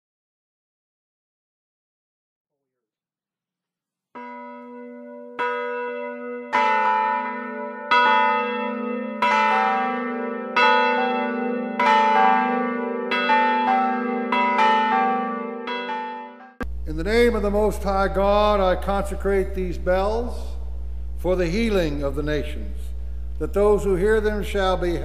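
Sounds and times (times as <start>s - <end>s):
church bells ringing: 4.2s - 20.6s, 23.4s - 25.0s.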